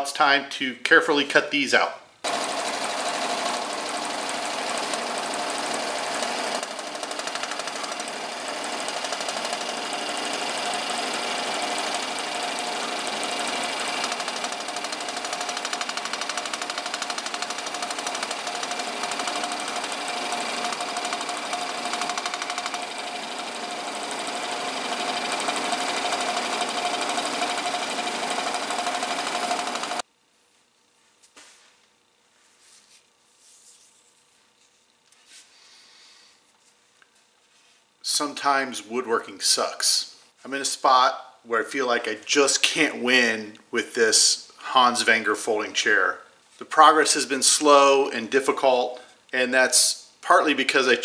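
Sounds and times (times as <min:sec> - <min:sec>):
scroll saw cutting wood: 0:02.2 - 0:30.0.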